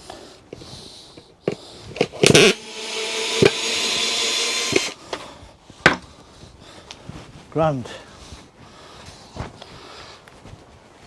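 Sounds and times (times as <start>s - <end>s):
drill knocking against wood: 2.2s - 5.0s
drill motor running: 2.2s - 5.0s.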